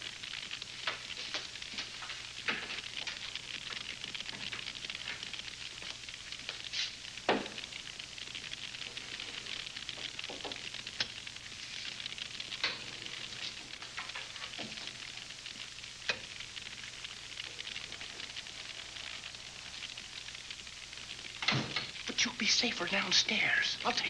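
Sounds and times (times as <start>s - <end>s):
old film soundtrack hiss: 0.0s - 24.0s.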